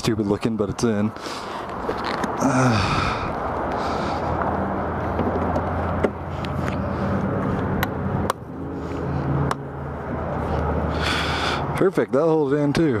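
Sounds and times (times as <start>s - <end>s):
vehicle engine running: 2.9s - 11.8s.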